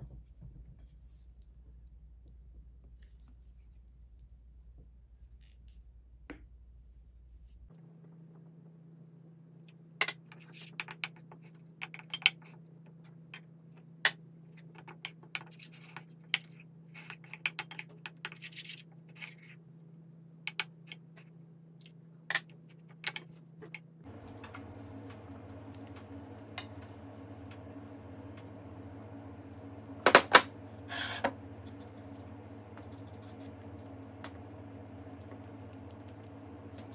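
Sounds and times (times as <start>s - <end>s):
low steady hum: 0.0s - 36.9s.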